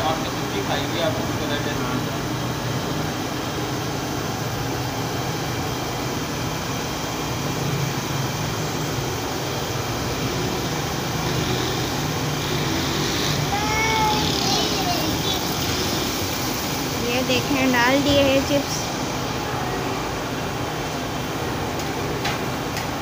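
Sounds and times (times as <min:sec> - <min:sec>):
gas burner roaring: 0:00.0 - 0:23.0
street traffic: 0:00.0 - 0:23.0.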